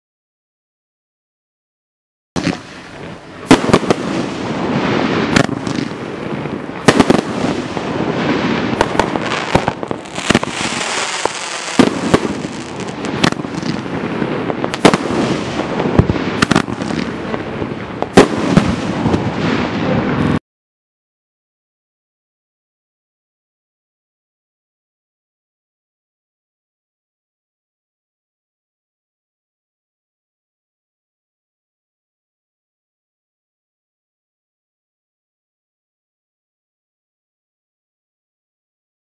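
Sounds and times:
fireworks bangs: 2.4s - 20.4s
fireworks crackle: 2.4s - 20.4s.

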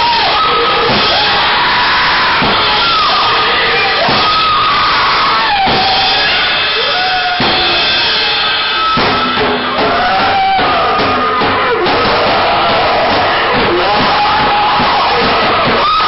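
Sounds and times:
distorted electric guitar noise: 0.0s - 16.0s
drum kit played hard: 0.0s - 16.0s.

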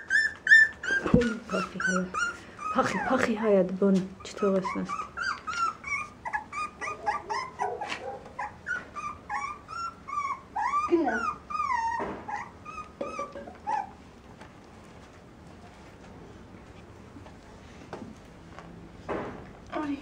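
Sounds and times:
puppies whimpering and yelping: 0.0s - 3.5s, 4.1s - 14.2s.

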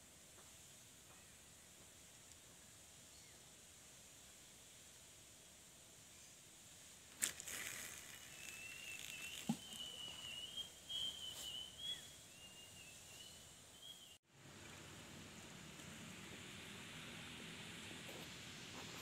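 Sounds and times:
faint ticks and rustle: 0.3s - 2.5s.

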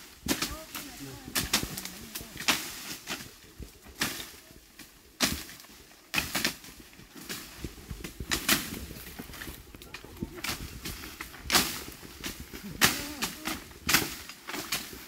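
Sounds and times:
leaves and stalks rustling: 0.0s - 15.0s
blades chopping bamboo: 0.2s - 3.3s, 5.2s - 8.8s, 10.4s - 15.0s.

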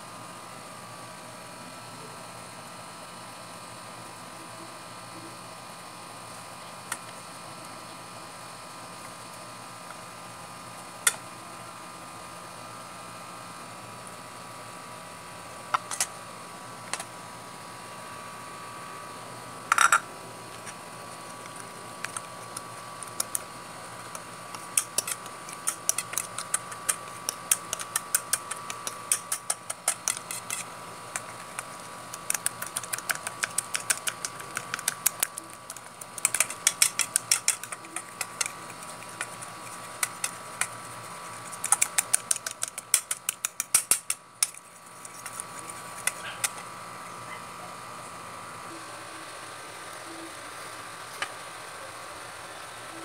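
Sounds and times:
steady hum: 0.0s - 53.0s
fork clicking against bowl: 21.5s - 23.4s, 24.1s - 46.6s.

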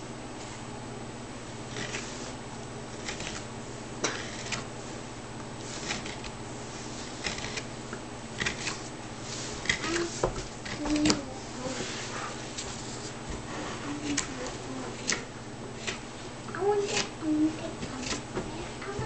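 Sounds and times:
knife scraping wood: 1.7s - 4.7s, 5.6s - 7.7s, 8.4s - 14.3s, 16.8s - 17.1s, 17.8s - 18.3s.

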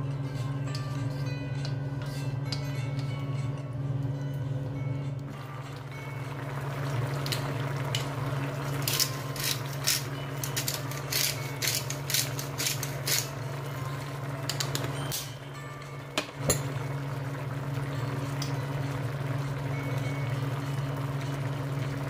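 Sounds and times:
steady low hum: 0.0s - 22.0s
pepper mill grinding: 8.8s - 13.5s.

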